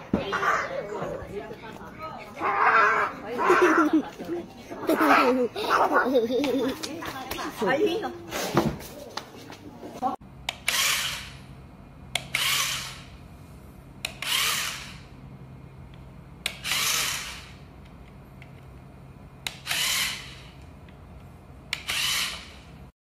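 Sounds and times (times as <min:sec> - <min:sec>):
low steady hum: 0:09.0 - 0:22.9
small toy motor whirring: 0:10.5 - 0:11.4, 0:12.2 - 0:13.2, 0:14.1 - 0:15.1, 0:16.5 - 0:17.6, 0:19.5 - 0:20.6, 0:21.7 - 0:22.7.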